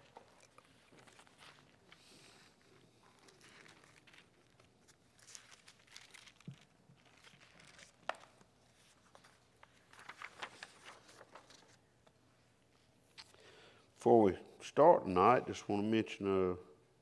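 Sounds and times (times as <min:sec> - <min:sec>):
paper pages rustling: 0:00.0 - 0:12.2.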